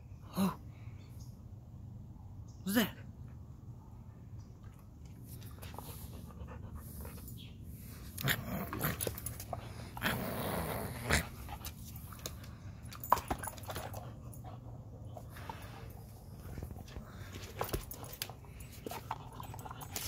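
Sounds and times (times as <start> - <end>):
dog panting and grumbling: 5.5 - 7.4.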